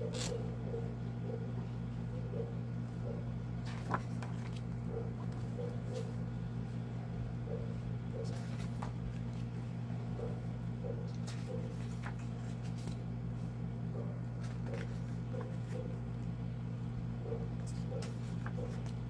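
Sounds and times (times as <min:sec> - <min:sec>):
book pages rustling: 0:00.0 - 0:00.4, 0:03.6 - 0:06.2, 0:08.2 - 0:09.6, 0:11.1 - 0:13.6, 0:14.3 - 0:15.9, 0:17.6 - 0:19.0
steady low hum: 0:00.0 - 0:19.0.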